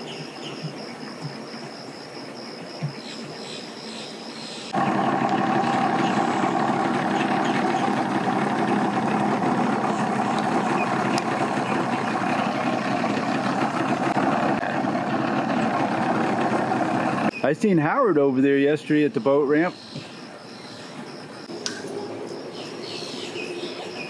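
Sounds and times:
engine idling: 4.7s - 17.4s.

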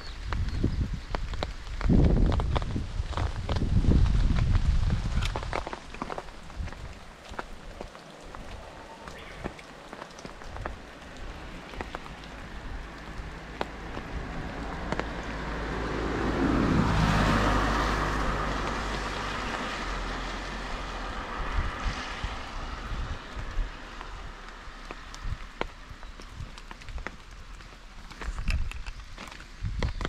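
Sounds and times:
steady rain: 0.0s - 29.8s
car passing on wet road: 1.2s - 28.0s.

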